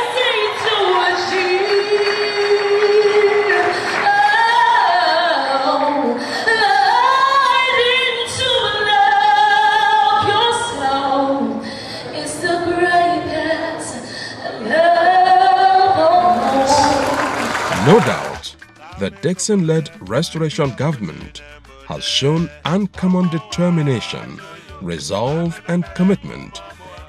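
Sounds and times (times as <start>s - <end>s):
girl singing into a microphone: 0.0s - 17.1s.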